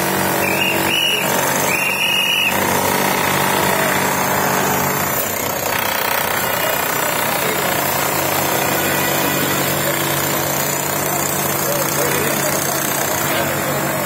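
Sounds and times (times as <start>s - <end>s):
power tool hammering: 0.0s - 14.0s
short high-pitched tones: 0.4s - 2.6s.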